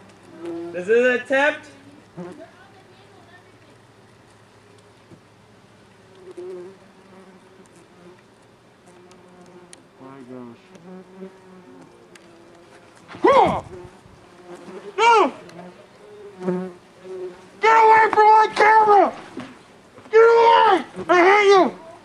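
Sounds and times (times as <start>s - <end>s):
bees humming: 0.0s - 22.0s
bees buzzing past microphone: 6.2s - 8.2s, 10.4s - 17.7s.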